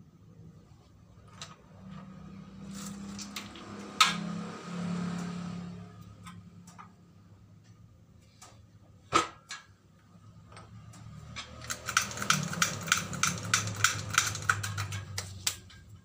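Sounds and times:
fast run of jack clicks: 11.6s - 15.3s.

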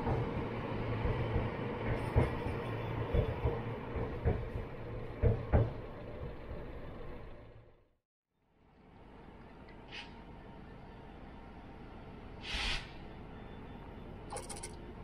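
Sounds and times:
wheels knocking on rail joints: 0.0s - 6.6s.

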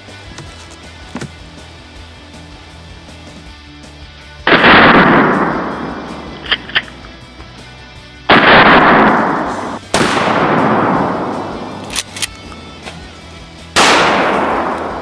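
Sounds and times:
shotgun blasts with echo: 4.5s - 7.0s, 8.3s - 12.9s, 13.8s - 15.0s
shotgun pump action clicks: 11.8s - 13.0s.

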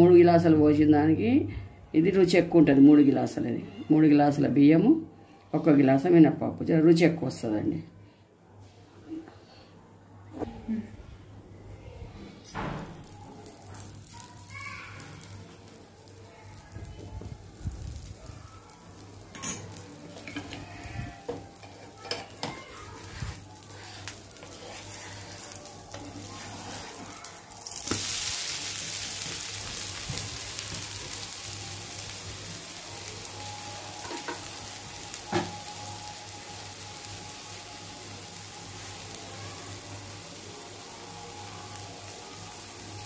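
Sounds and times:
food sizzling on griddle: 13.0s - 43.0s.

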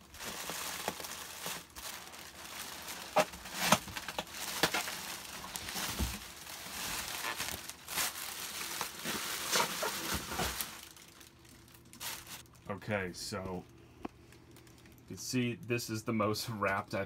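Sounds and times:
plastic packaging wrap crinkling: 0.0s - 12.7s, 14.3s - 15.1s.

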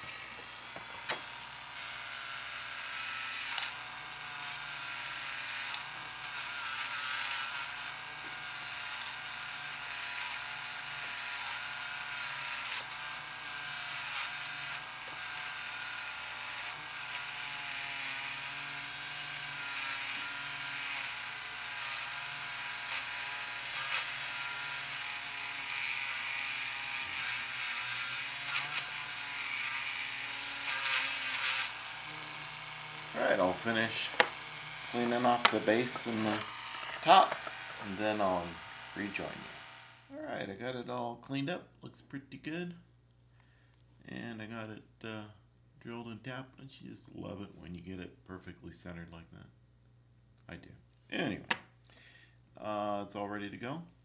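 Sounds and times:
rotary tool motor whine: 0.0s - 40.1s
wire brush scratching metal: 33.1s - 39.5s.

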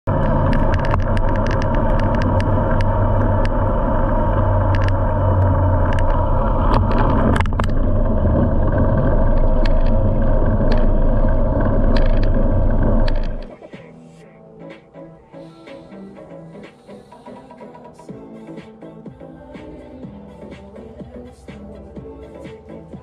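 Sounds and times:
vehicle engine running evenly: 0.0s - 13.5s
sharp clicks and ticks: 0.1s - 13.5s.

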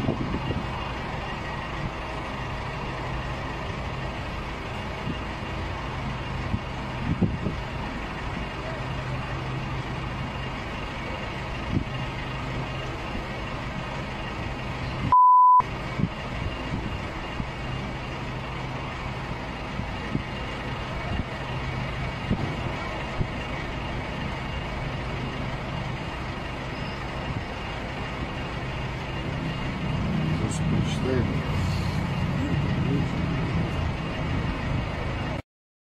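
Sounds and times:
road noise: 0.0s - 35.4s
vehicle engine humming: 0.0s - 35.4s
loud single-pitch beep: 15.1s - 15.6s.

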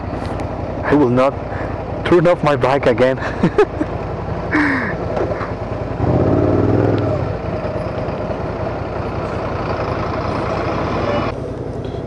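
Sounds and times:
nearby traffic engine rumble: 0.0s - 12.0s
motorcycle engine idling: 5.5s - 10.9s.

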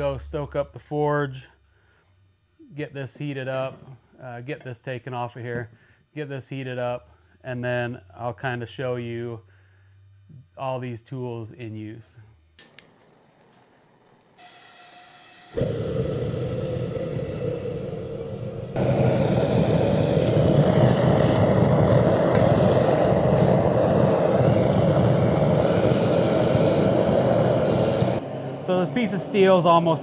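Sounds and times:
faint gas hiss: 0.0s - 30.0s
gas forge burner roaring: 14.4s - 30.0s.

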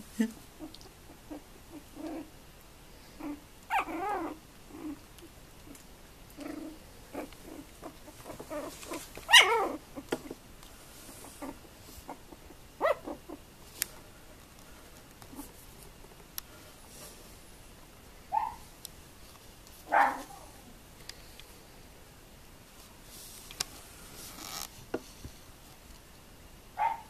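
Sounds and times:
puppies' soft small noises: 0.0s - 26.1s
puppies barking: 9.3s - 9.8s, 12.1s - 13.4s, 19.9s - 20.3s, 26.8s - 27.0s.

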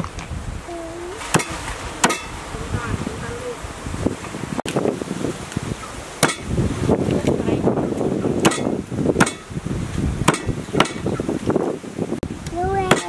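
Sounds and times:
blade chopping chicken on wood: 10.3s - 11.0s.

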